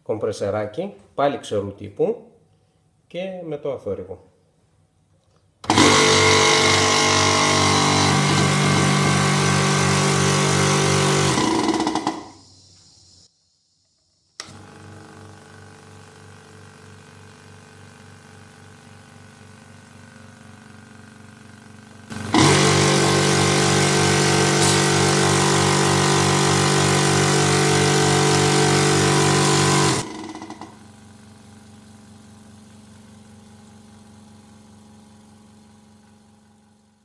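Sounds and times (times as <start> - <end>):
air compressor running loudly: 5.6 - 13.2, 14.4 - 35.8.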